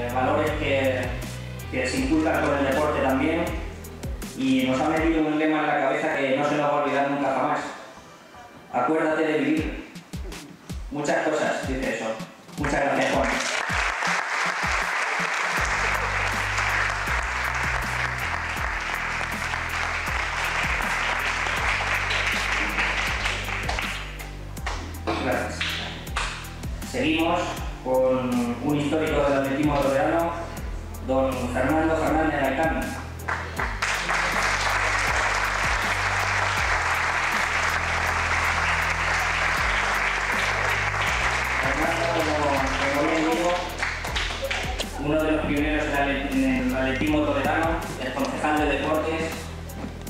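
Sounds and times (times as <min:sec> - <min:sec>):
background music with bass line: 0:00.0 - 0:06.6, 0:09.4 - 0:50.0
audience applauding: 0:12.6 - 0:24.8, 0:33.3 - 0:44.9.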